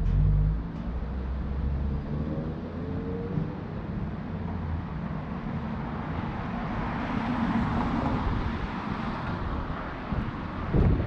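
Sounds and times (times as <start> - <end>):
wind rumble on microphone: 6.0 - 11.0.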